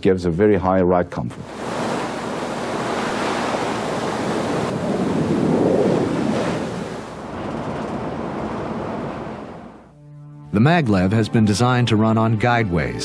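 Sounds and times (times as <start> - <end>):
train passing with rush of air: 1.5 - 9.8.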